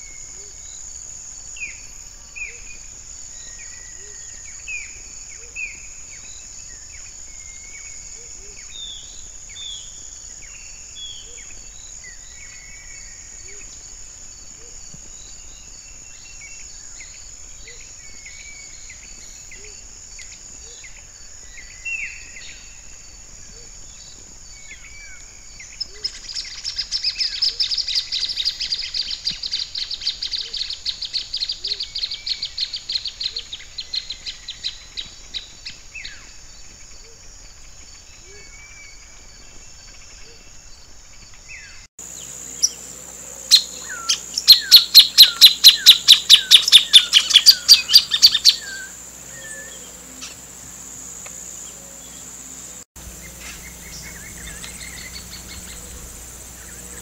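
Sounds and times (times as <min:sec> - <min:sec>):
high insect drone: 0:00.0 - 0:57.0
soft chirps: 0:41.6 - 0:57.0
bird song of rapid sharp notes: 0:43.5 - 0:50.5, 0:53.0 - 0:57.0.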